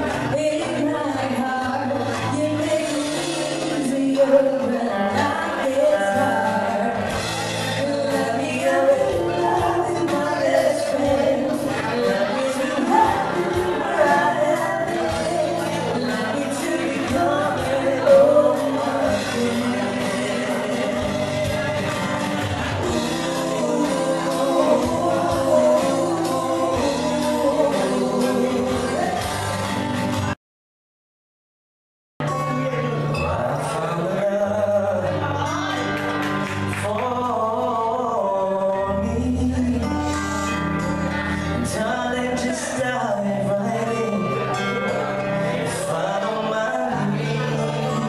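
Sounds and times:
woman singing into microphone: 0.0 - 29.5
drums: 0.0 - 30.4
guitar: 0.0 - 30.4, 32.2 - 48.0
live band music: 0.0 - 30.4.

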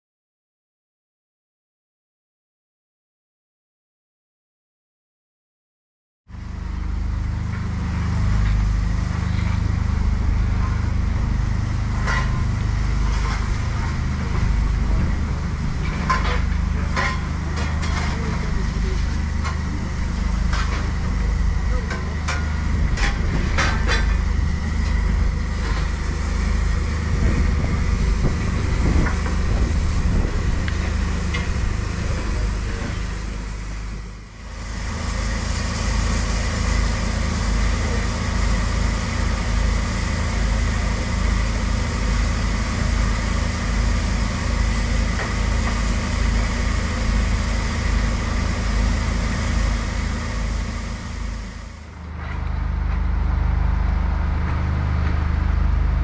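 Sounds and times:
locomotive engine rumbling: 6.3 - 56.0
locomotive hissing: 7.0 - 52.2.

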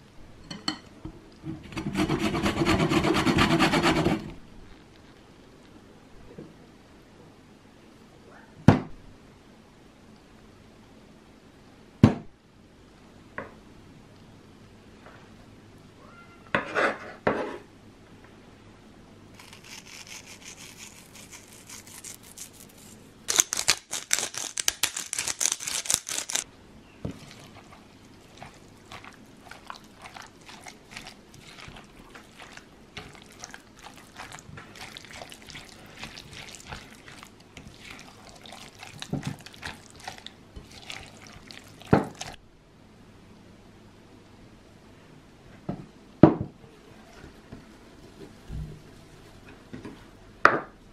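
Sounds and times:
spatula scraping bowl: 1.5 - 4.3, 19.4 - 23.0, 27.1 - 42.4
spatula squelching thick mixture: 19.4 - 23.1, 27.0 - 42.4.

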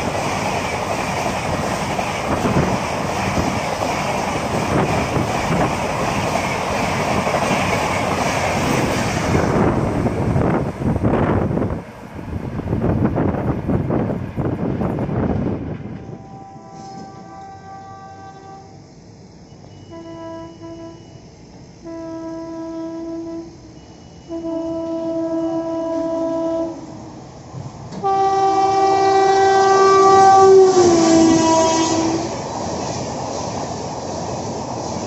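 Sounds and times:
train coaches running by: 0.0 - 35.0
locomotive horn blasts: 16.0 - 18.9, 19.7 - 27.1, 28.0 - 32.4.

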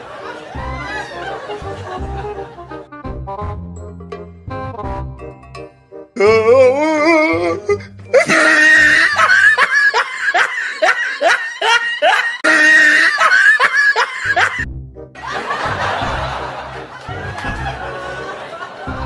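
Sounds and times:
high-pitched cackling laughter: 8.2 - 14.6
music with low beat: 14.6 - 18.1.

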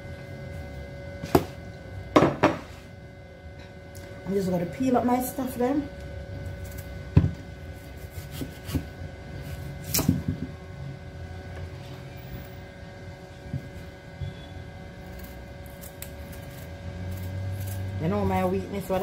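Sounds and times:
faint hum: 0.0 - 19.0
knocks on cutting board: 2.2 - 2.6, 7.2 - 7.4
knife scraping: 7.7 - 10.1, 15.0 - 18.0.

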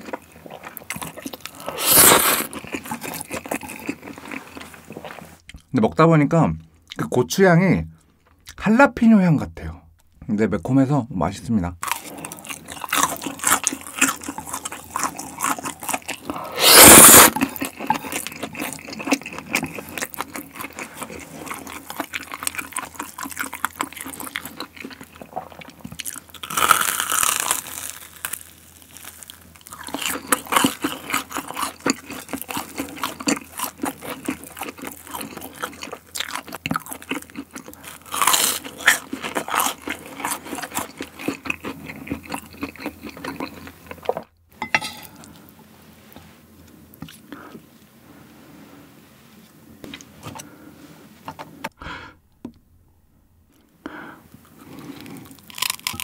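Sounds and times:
chewing and crunching food: 0.0 - 5.7, 11.8 - 44.4, 53.5 - 56.0.

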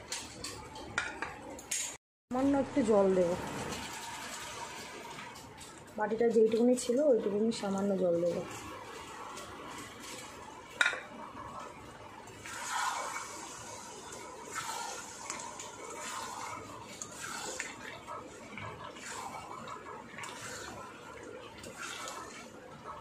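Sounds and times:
curry sizzling in a pan: 0.1 - 23.0
spatula scraping and stirring: 6.4 - 23.0.

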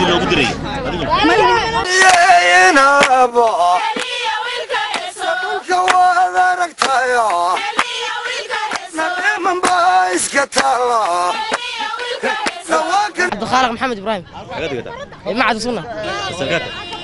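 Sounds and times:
male voices singing chant: 0.0 - 13.4.

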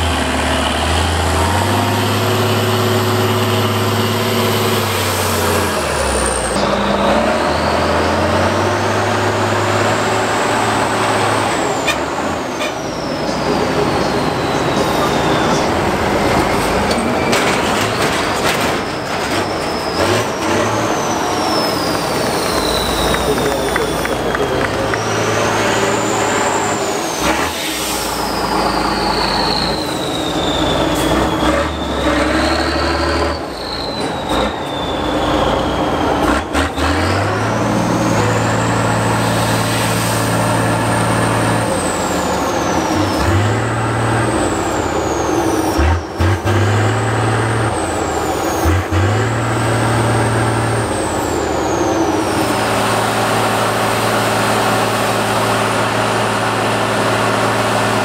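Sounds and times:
diesel truck engine revving: 0.0 - 58.0.

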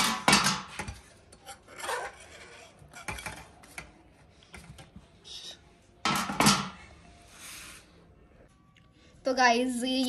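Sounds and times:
fork and skewer scraping metal plate: 1.4 - 3.4.

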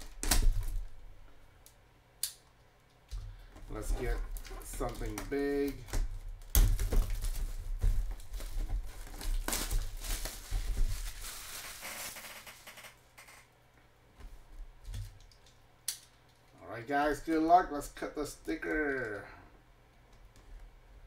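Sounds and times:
cardboard box crinkling and rustling: 6.7 - 12.2.

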